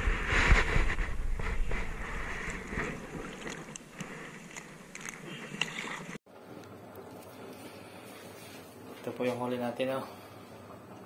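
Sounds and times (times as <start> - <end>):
shallow water splashing and lapping: 1.5 - 6.2.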